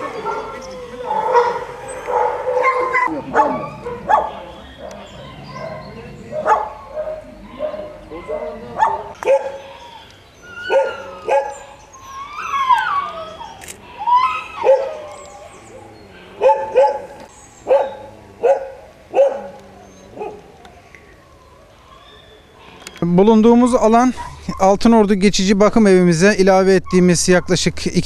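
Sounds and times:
dog whining cry: 0.0 - 4.5, 6.4 - 17.1
dogs barking: 0.0 - 13.6, 14.5 - 20.6.

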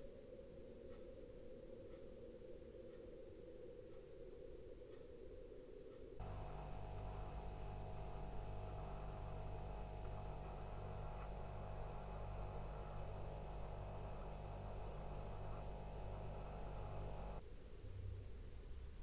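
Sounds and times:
faint electrical hum: 0.0 - 19.0
light hiss: 0.0 - 19.0.

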